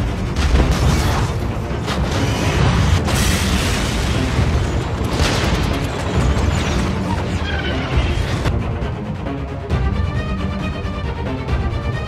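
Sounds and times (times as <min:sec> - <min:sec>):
booms and explosions: 0:00.0 - 0:08.5
music: 0:00.0 - 0:12.0.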